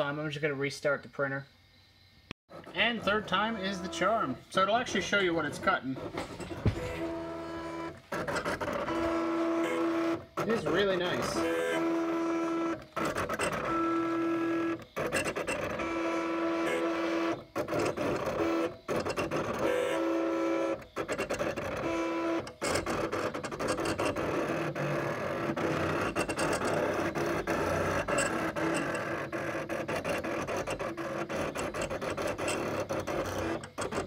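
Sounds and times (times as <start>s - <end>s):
continuous machine whirr: 1.7s - 34.0s
cutting machine motors whining: 2.5s - 34.0s.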